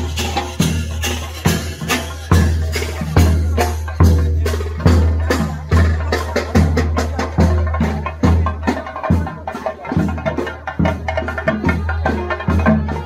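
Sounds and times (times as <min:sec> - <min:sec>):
drum ensemble playing: 0:00.0 - 0:13.0.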